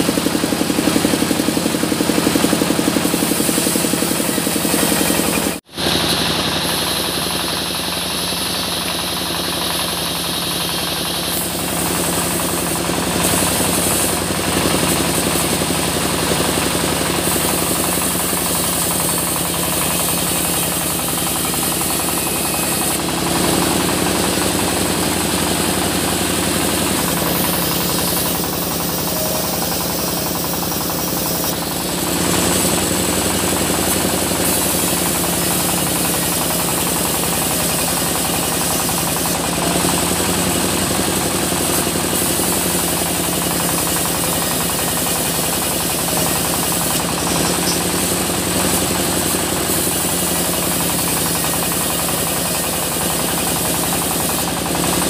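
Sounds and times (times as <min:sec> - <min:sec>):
sawmill saw cutting logs: 0:00.0 - 0:55.0.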